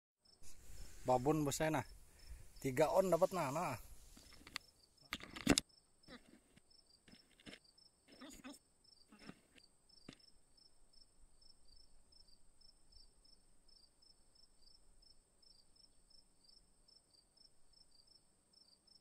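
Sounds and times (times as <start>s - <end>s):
insect chorus trilling: 0.2s - 5.1s
insect chirps: 0.2s - 19.0s.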